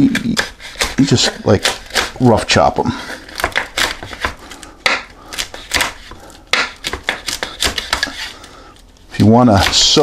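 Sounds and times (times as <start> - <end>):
knife chopping on wooden board: 0.0 - 2.4, 3.3 - 8.3, 9.5 - 10.0.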